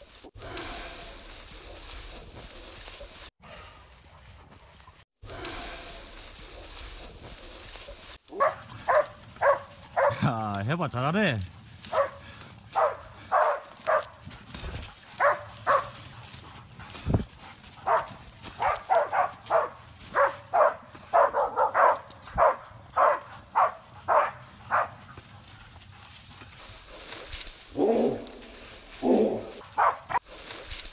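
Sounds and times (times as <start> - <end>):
dog barking: 8.4 - 10.2, 11.9 - 14.2, 15.2 - 16.0, 17.8 - 25.0, 29.8 - 30.2.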